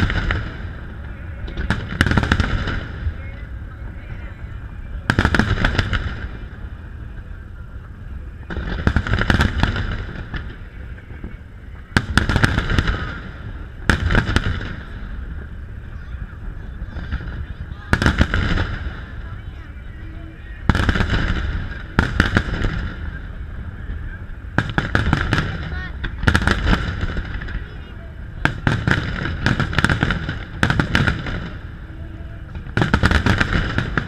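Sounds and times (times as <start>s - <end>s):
firework bangs and crackles: 0.0s - 34.0s
low rumble: 0.0s - 34.0s.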